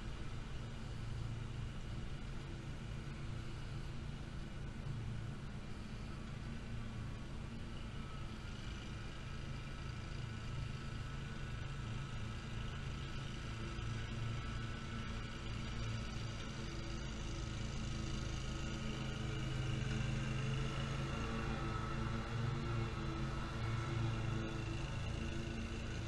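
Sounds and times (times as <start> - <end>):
mower engine running: 6.2 - 26.0.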